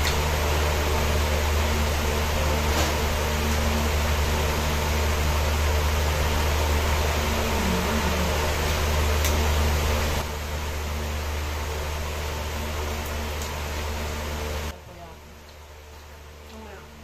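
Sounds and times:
fan whirring with low hum: 0.0s - 17.0s.

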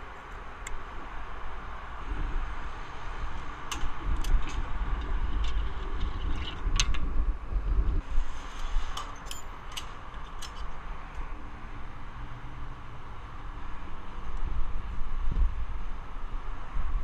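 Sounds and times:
wind rumbling on microphone: 0.0s - 17.0s
metallic clicks and clinks: 9.0s - 10.7s.

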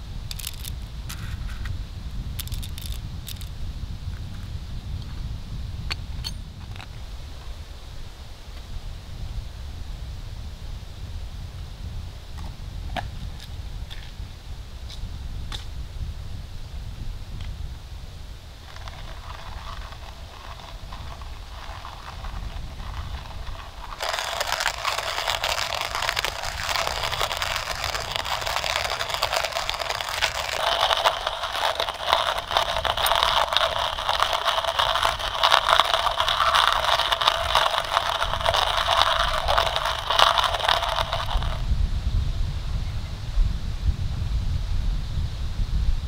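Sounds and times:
hand coffee grinder crunching beans: 0.3s - 1.6s, 2.4s - 3.5s, 18.6s - 41.6s.

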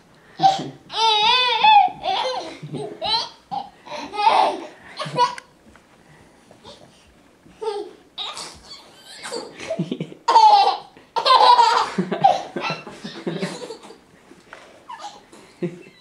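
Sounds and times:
baby laughing: 0.4s - 5.5s, 7.6s - 14.0s, 14.9s - 15.2s.

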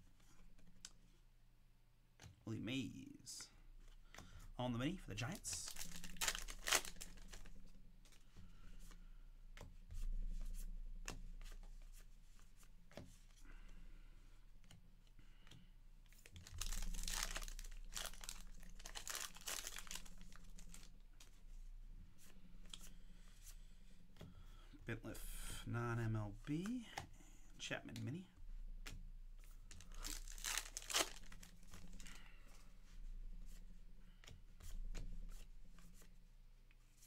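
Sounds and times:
wrapper crinkling: 5.4s - 7.5s, 16.2s - 20.9s, 29.7s - 32.1s
wrapper tearing: 5.6s - 7.5s, 16.3s - 20.9s, 29.7s - 32.0s.

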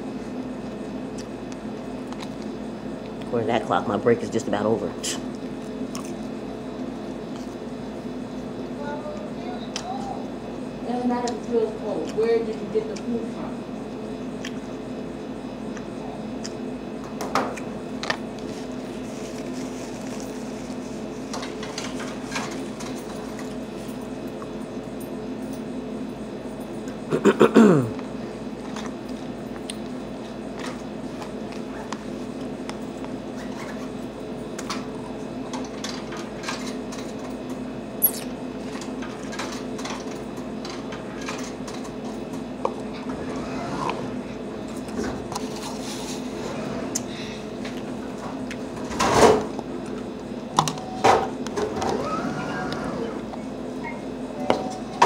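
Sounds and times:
steady room hum: 0.0s - 55.0s
chewing: 5.3s - 7.6s.

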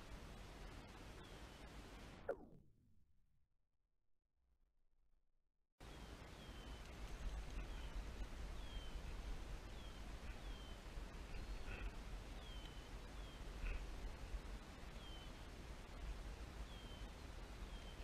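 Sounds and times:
wind rumble on microphone: 5.8s - 18.0s.

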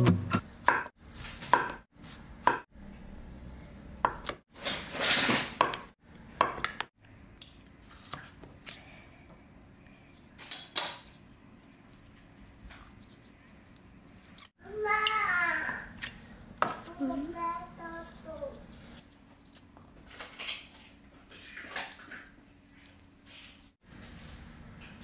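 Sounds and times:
knife chopping on wooden board: 0.0s - 0.9s, 1.5s - 1.8s.

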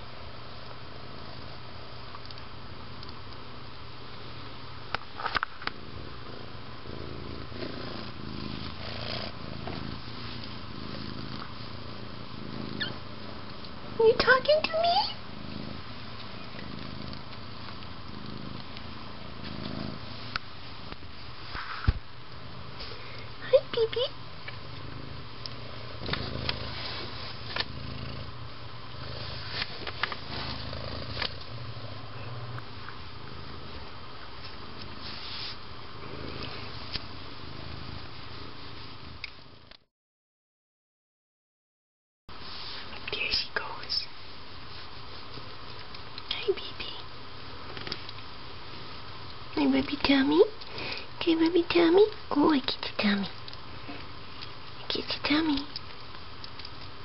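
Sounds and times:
cat purring: 0.0s - 39.8s
low steady hum: 0.0s - 39.8s, 42.3s - 57.0s
soft rustling: 7.0s - 23.2s, 25.6s - 27.8s, 29.0s - 37.2s, 42.3s - 43.3s, 44.1s - 46.2s.

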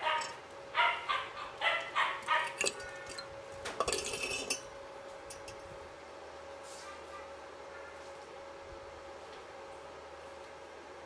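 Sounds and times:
metal parts rattling: 0.0s - 0.4s, 2.2s - 4.6s
dog barking: 0.0s - 2.6s.

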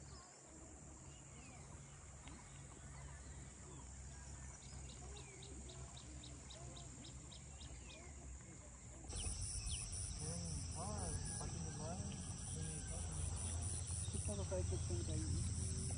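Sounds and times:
high insect buzz: 9.1s - 14.3s
birds calling: 9.1s - 15.9s
pulsing insect chirring: 9.1s - 15.9s.

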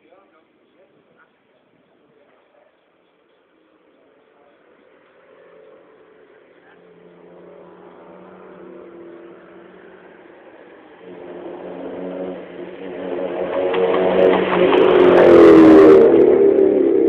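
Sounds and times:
vehicle engine running: 3.7s - 17.0s.

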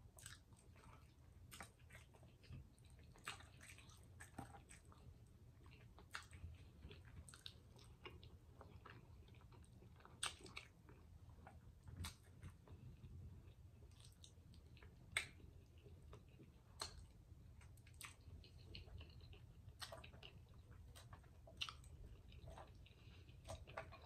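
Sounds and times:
chewing with wet smacks: 0.0s - 24.0s.

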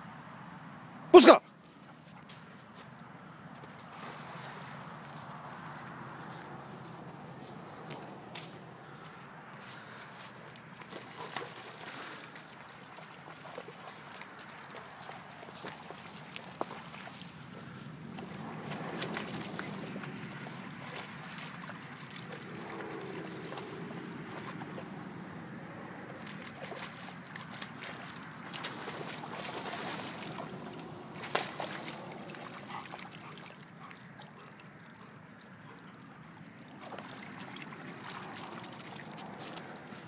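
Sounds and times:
water sloshing and trickling: 1.6s - 40.0s.

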